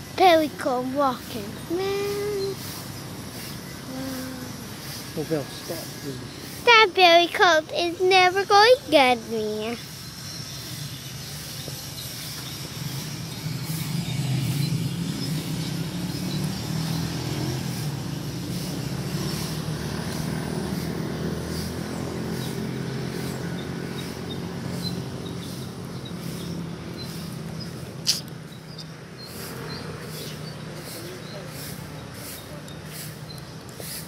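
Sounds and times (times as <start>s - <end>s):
engine droning: 0.0s - 34.0s
faint regular ticks: 9.7s - 34.0s.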